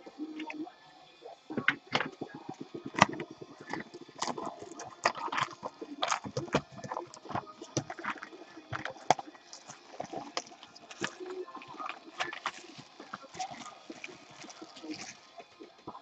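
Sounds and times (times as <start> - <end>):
plastic shrink wrap crackling: 2.8 - 16.0.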